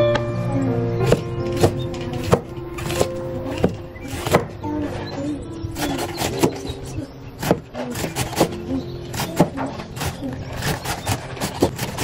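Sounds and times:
cleaver chopping on wooden board: 0:01.1 - 0:04.5, 0:07.4 - 0:12.0.

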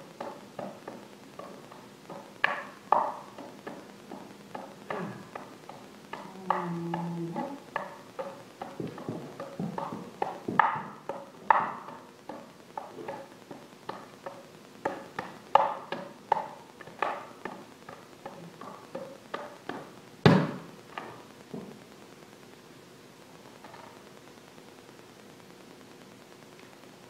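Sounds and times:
juggling clubs clacking: 0:00.0 - 0:21.3.

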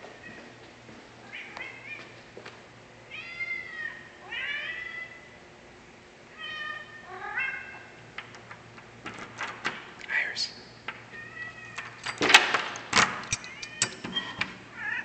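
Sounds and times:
cat meowing: 0:06.4 - 0:07.8, 0:11.2 - 0:11.8
keys jingling in a lock: 0:09.0 - 0:09.7, 0:11.7 - 0:14.5.

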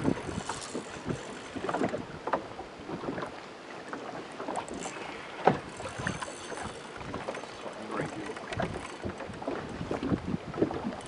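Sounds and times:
wind on microphone: 0:00.0 - 0:02.3, 0:08.0 - 0:11.0
water lapping against boat hull: 0:00.0 - 0:11.0
knocks on boat: 0:05.4 - 0:05.7, 0:08.1 - 0:10.8.

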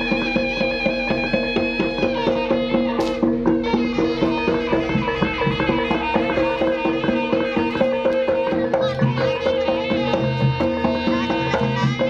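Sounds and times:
gamelan: 0:00.0 - 0:12.0
hand drum strokes: 0:00.0 - 0:12.0
reedy wind instrument melody: 0:00.0 - 0:12.0.

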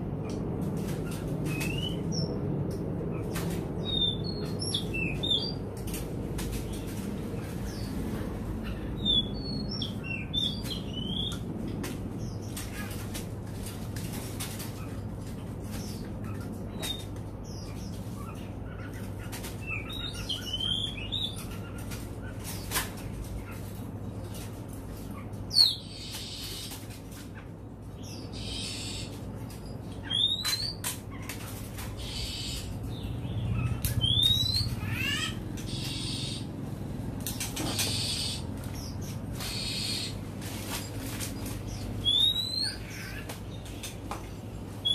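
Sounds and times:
wing flutters against cage: 0:33.6 - 0:44.2
bird whistled chirps: 0:42.0 - 0:42.8.

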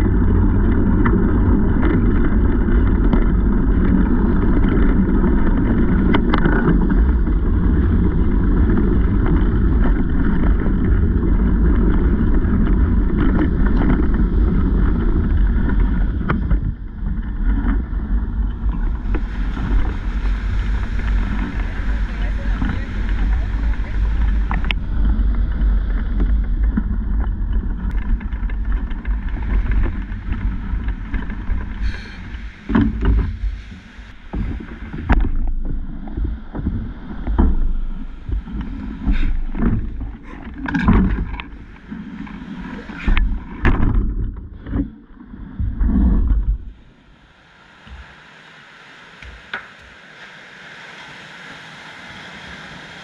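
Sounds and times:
wind buffeting microphone: 0:00.0 - 0:47.2
faint surf hiss: 0:17.4 - 0:26.3, 0:27.9 - 0:43.9, 0:44.6 - 0:53.0.

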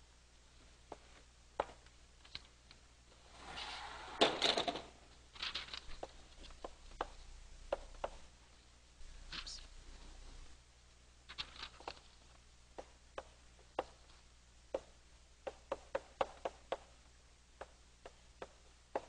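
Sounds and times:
scraping rustle: 0:03.1 - 0:06.6.

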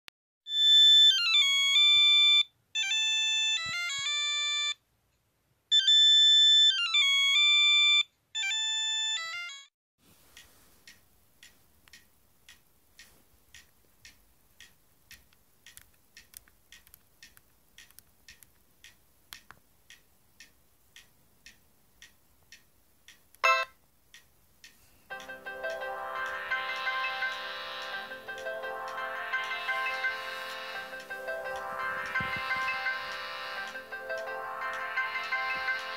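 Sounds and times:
electronic beeping ringtone melody: 0:00.5 - 0:04.8, 0:05.7 - 0:09.7, 0:23.4 - 0:23.7, 0:25.1 - 0:35.9
loud ringtone burst: 0:23.4 - 0:23.7, 0:25.1 - 0:35.9.

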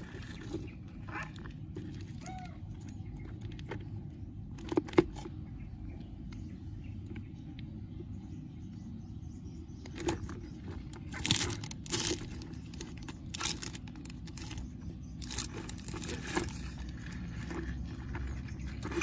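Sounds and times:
stick scraping plastic tub: 0:09.8 - 0:19.0
plastic bag crinkling: 0:11.0 - 0:19.0.

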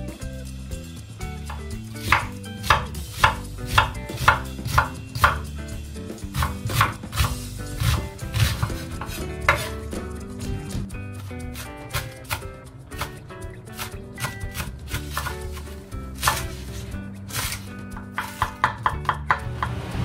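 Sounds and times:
soft background music: 0:00.0 - 0:20.0
knife chopping on wooden board: 0:01.4 - 0:05.5, 0:06.3 - 0:09.8, 0:11.6 - 0:13.2, 0:13.8 - 0:19.8.

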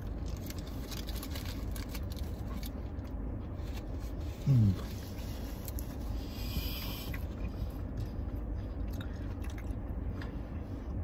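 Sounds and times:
crisp crackle of bread: 0:00.0 - 0:04.0
low background rumble: 0:00.0 - 0:11.0
person chewing a sandwich: 0:00.0 - 0:11.0.

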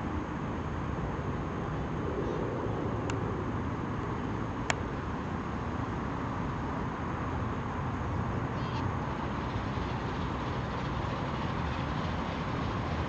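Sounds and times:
miniature train rumbling: 0:05.6 - 0:13.0.

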